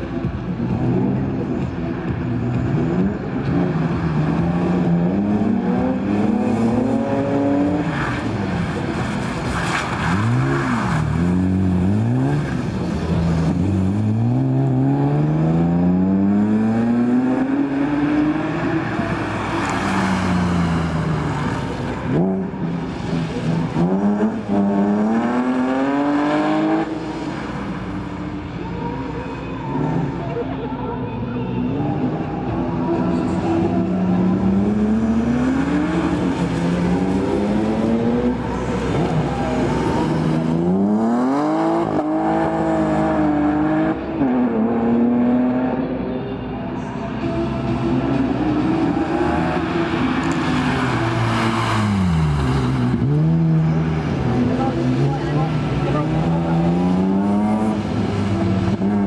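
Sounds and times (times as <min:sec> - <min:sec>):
car engine revving hard: 0:48.6 - 0:59.0.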